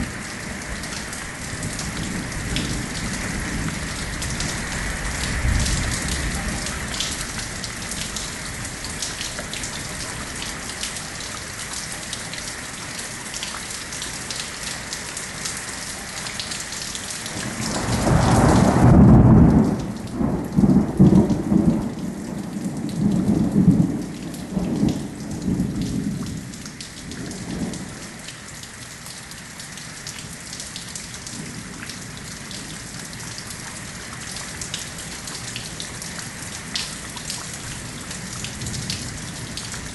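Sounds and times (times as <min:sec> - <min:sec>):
rain hissing and pattering: 0:00.0 - 0:39.9
thunder rumbling: 0:01.4 - 0:08.7, 0:17.4 - 0:26.5.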